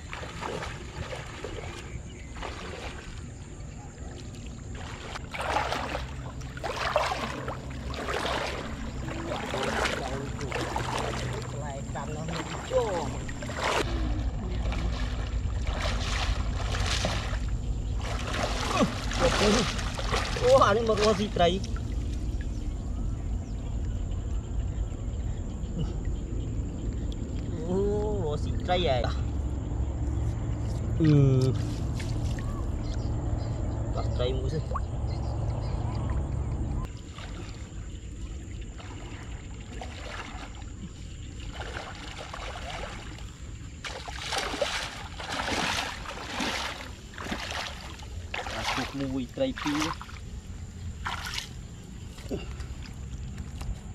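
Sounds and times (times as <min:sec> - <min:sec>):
water sloshing around legs: 0:00.0 - 0:24.9, 0:31.4 - 0:33.0, 0:36.8 - 0:53.9
low rumble: 0:05.2 - 0:36.9.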